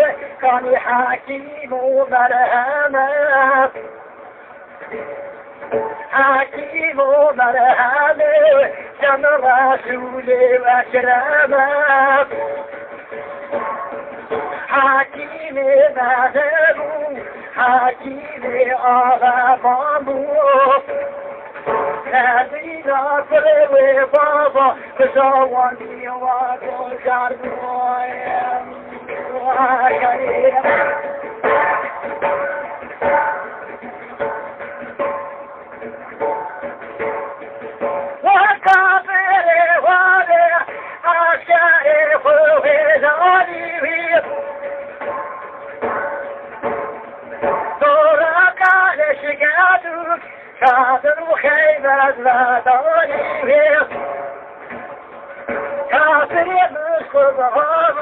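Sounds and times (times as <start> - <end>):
man singing devotional ode: 0.0 - 3.8, 6.0 - 12.8, 14.3 - 31.4, 38.2 - 44.6, 47.6 - 54.2, 55.7 - 58.0.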